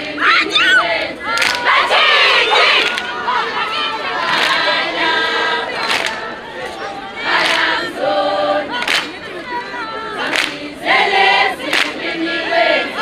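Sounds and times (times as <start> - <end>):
girls singing a cappella: 0.0 - 13.0
hand claps: 1.3 - 1.6, 4.3 - 4.7, 5.8 - 6.2, 7.4 - 7.7, 8.8 - 9.2, 10.2 - 10.6, 11.6 - 12.0.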